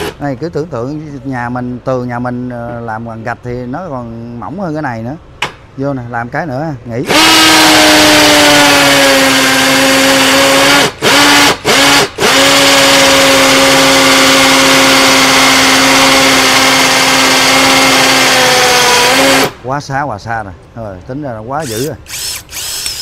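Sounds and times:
hammer drill drilling into concrete: 7.1 - 19.5, 21.6 - 23.0.

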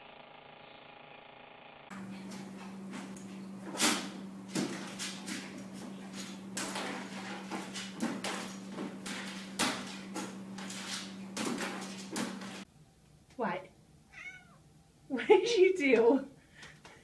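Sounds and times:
steady low hum: 1.9 - 14.1.

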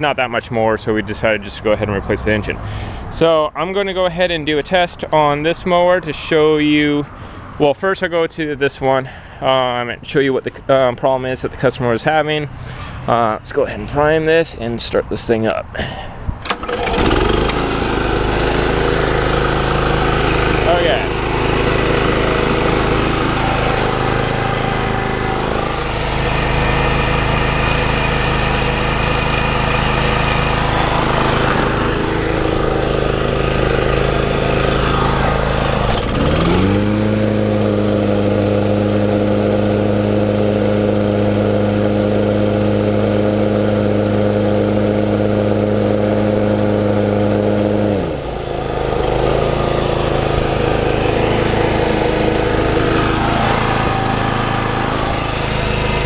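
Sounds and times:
lawn mower engine running: 15.9 - 56.0.

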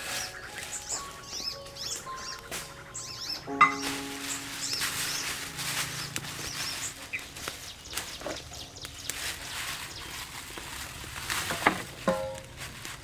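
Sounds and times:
high bird chirps: 0.0 - 9.3.

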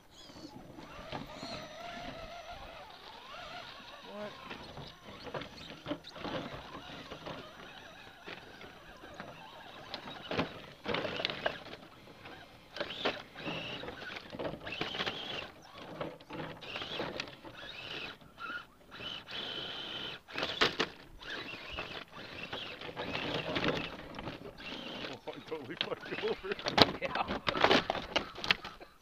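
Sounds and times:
electric motor whining: 0.0 - 28.8.

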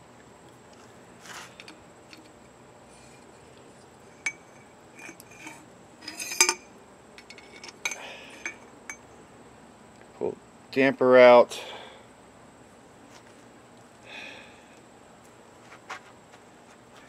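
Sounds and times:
metallic clinks and rattles: 4.1 - 9.0.

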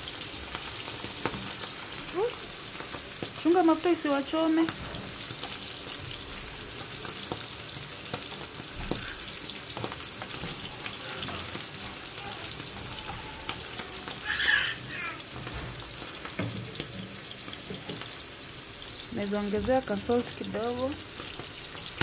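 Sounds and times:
mushrooms sizzling in oil: 0.0 - 22.0
spatula scraping and tapping pan: 15.4 - 18.2.

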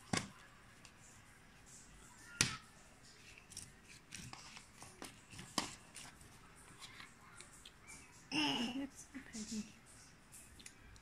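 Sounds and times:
faint paper rustling: 0.0 - 8.2.

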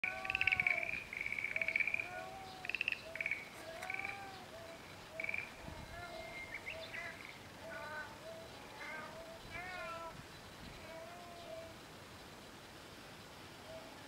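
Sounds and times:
high rattling calls: 0.0 - 14.0
cat meowing: 2.0 - 2.7, 8.7 - 10.2.

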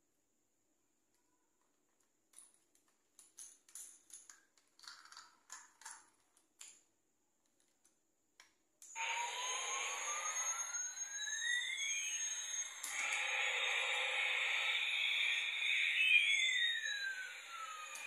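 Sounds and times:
plastic toy clicks and rattles: 2.3 - 6.8
toy jet engine sound effect: 9.0 - 18.0.

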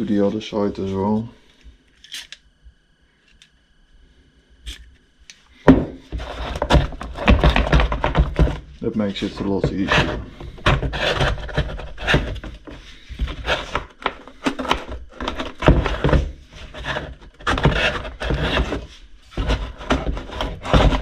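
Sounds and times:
plastic knocking: 5.7 - 8.7
plastic scraping against frame: 6.1 - 21.0.

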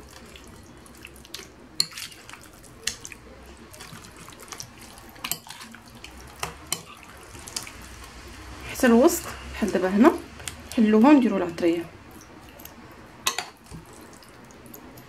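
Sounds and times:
wet squelching: 0.0 - 8.3.

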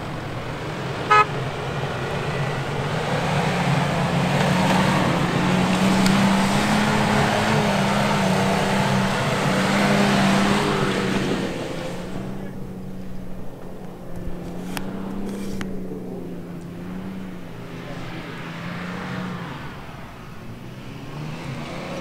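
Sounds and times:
car engine under load: 0.0 - 22.0
short car horn toot: 1.1 - 1.4.

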